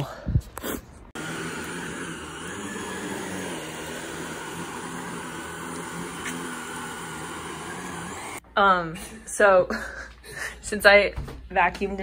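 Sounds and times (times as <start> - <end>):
vacuum cleaner motor hum: 1.2 - 8.4.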